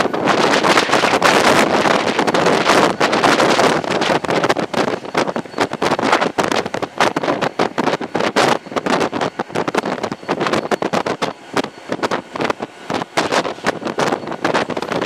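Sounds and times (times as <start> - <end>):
locomotive running noise: 0.0 - 15.0
wind buffeting microphone: 0.0 - 15.0.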